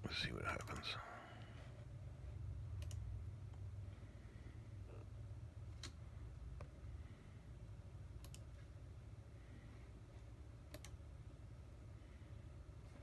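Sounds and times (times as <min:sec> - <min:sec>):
low steady hum: 0:00.0 - 0:13.0
computer mouse clicking: 0:00.5 - 0:00.9, 0:02.8 - 0:03.6, 0:08.2 - 0:08.6, 0:10.6 - 0:11.0.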